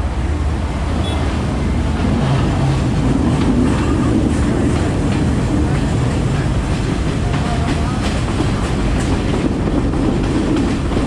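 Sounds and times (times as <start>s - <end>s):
train rumbling: 0.0s - 11.0s
wheels clicking over rail joints: 2.4s - 11.0s.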